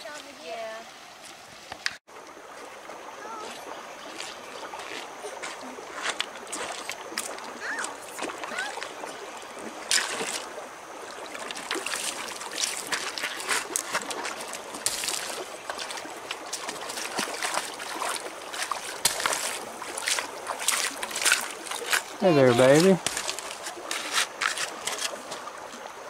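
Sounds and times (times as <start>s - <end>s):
creek water trickling over gravel: 0.0s - 26.0s
splashes of thrown stones: 4.0s - 25.5s.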